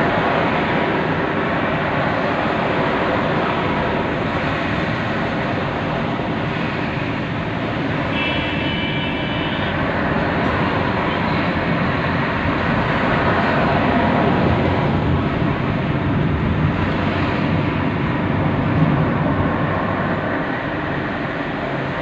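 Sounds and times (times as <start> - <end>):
car interior road noise: 0.0 - 22.0
brief high tone: 8.1 - 9.8.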